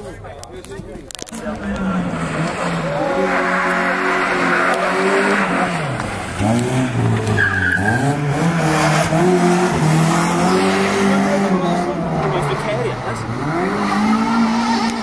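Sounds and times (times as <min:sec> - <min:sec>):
rally car engine revving: 0:01.2 - 0:15.0
tyre squeal: 0:07.2 - 0:08.2.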